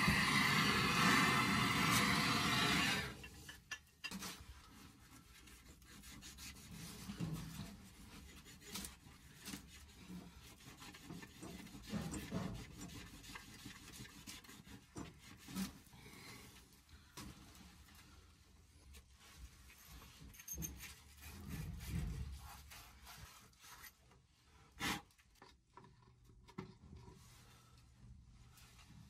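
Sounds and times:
gas torch flame hissing: 0.0 - 3.2
sand cloth scratching copper pipe: 4.2 - 15.9, 19.2 - 25.2.

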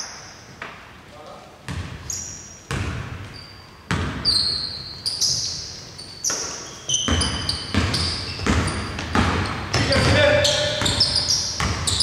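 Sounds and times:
basketball bouncing on hardwood: 1.7 - 2.0, 2.7 - 3.3, 3.9 - 4.3, 6.3 - 12.0
sneaker squeaks on floor: 1.7 - 12.0.

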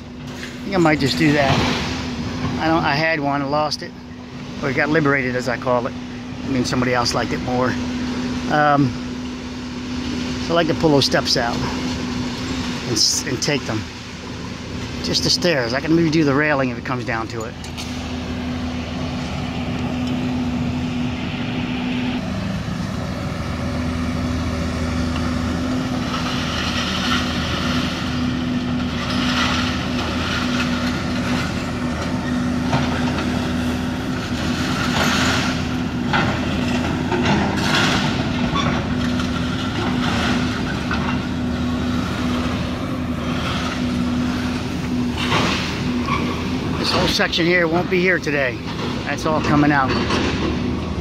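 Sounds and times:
excavator diesel engine running: 0.0 - 51.0
scrap metal clanking into truck bed: 34.3 - 41.3, 45.0 - 47.3, 48.7 - 50.7.

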